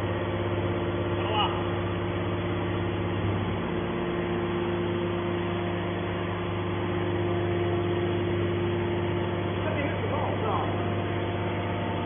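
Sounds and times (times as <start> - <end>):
hydraulic baler motor humming: 0.0 - 12.0.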